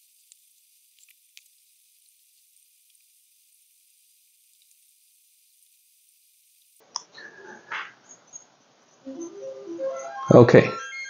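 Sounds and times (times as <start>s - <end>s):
faint ticks: 0.0s - 7.1s
faint high hiss: 0.0s - 10.9s.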